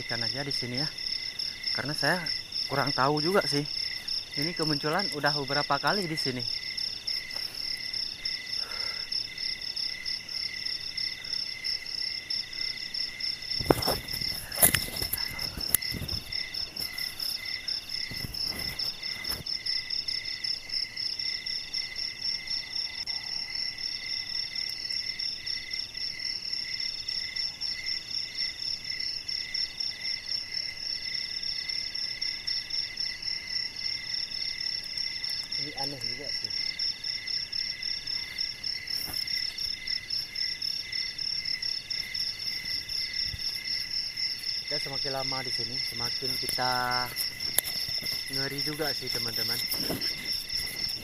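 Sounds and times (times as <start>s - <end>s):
insects chirring: 0.0s - 51.0s
knocks and rustles near microphone: 13.6s - 17.4s, 47.0s - 51.0s.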